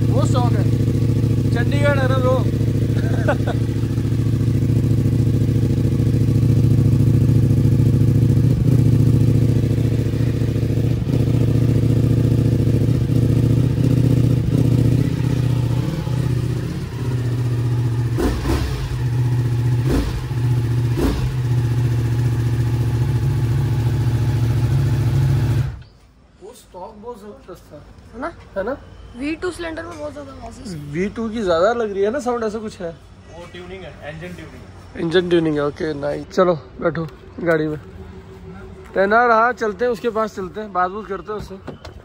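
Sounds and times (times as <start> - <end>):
motorcycle engine idling: 0.0 - 26.0.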